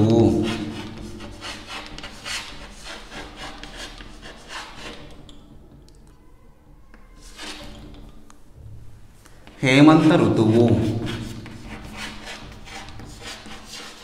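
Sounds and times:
chalk scratching on a chalkboard: 0.1 - 5.2, 7.0 - 8.0, 9.5 - 14.0.

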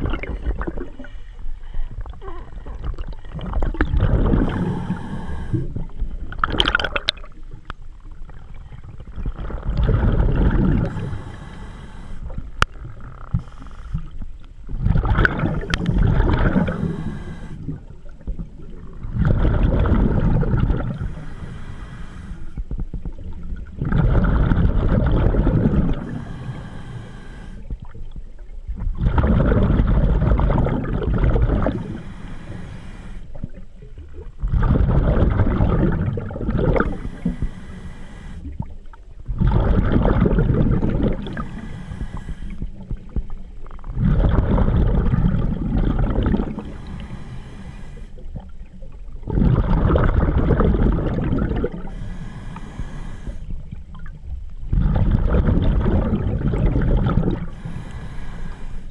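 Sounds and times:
bubbling exhalations: 0.0 - 7.4, 8.8 - 14.1, 14.8 - 21.5, 23.6 - 28.0, 28.9 - 32.6, 33.4 - 37.6, 38.4 - 43.3, 43.9 - 47.2, 49.2 - 54.1, 54.7 - 58.1
regulator inhalation hiss: 4.4 - 5.9, 10.8 - 12.4, 16.6 - 17.8, 21.0 - 22.6, 26.0 - 27.7, 31.7 - 33.4, 36.8 - 38.6, 41.2 - 42.8, 46.6 - 48.2, 51.8 - 53.6, 57.5 - 58.9.

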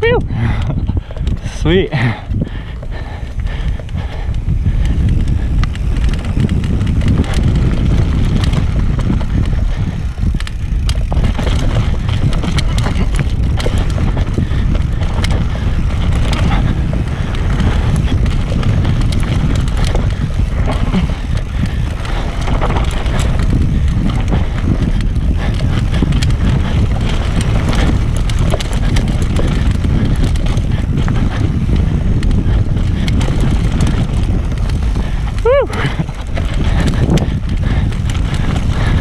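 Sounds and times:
bike frame and chain rattling: 0.0 - 39.0
wind buffeting microphone: 0.0 - 39.0
tyres rolling over dirt: 4.8 - 39.0.

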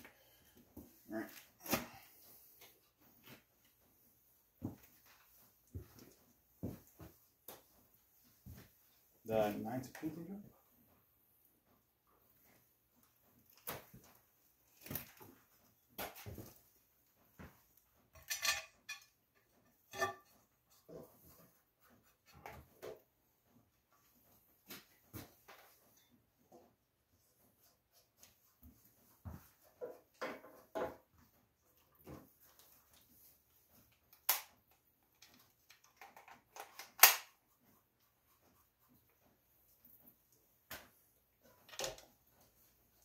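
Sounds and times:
metal clinks and clanks: 18.2 - 19.2.

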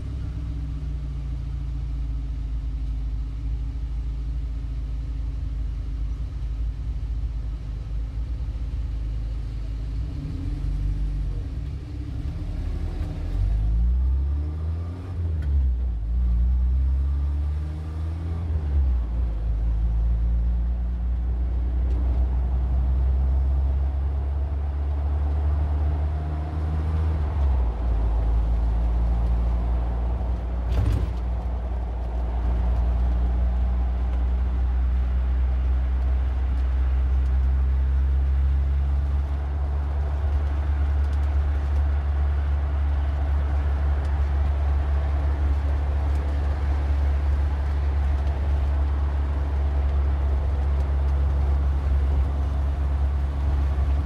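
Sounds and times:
car engine and road rumble: 0.0 - 54.0.

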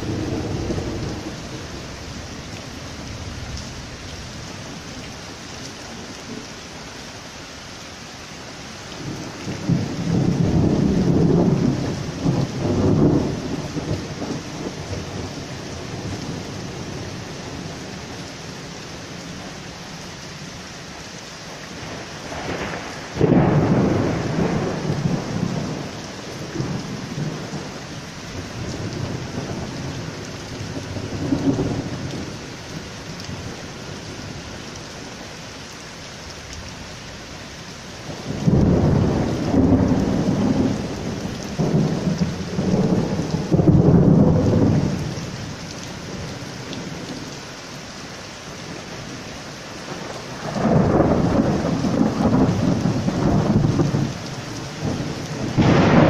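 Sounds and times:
heavy rain on paving: 0.0 - 56.0
rolling thunder: 9.0 - 15.3, 21.8 - 25.9, 38.2 - 45.1, 49.9 - 56.0.

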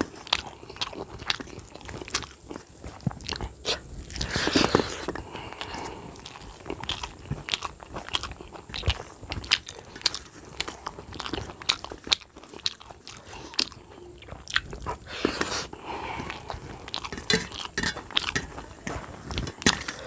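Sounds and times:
chewing and lip smacking: 0.0 - 20.0
fingers mixing food on steel plate: 16.1 - 20.0.

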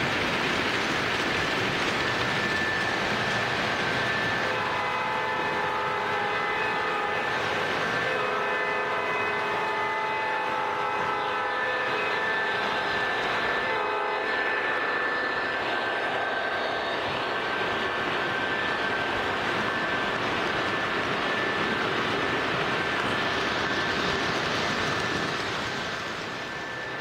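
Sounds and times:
train wheels rolling on track: 0.0 - 27.0
toy train horn: 4.0 - 16.2.

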